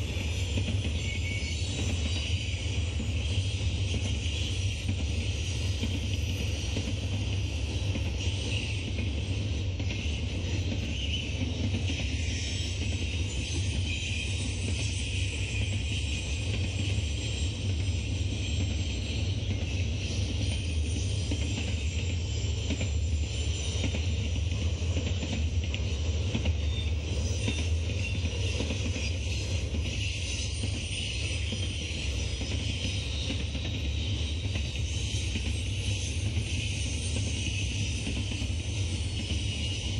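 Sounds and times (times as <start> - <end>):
freight train rumble: 0.0 - 39.9
wheels hissing on rails: 0.0 - 39.9.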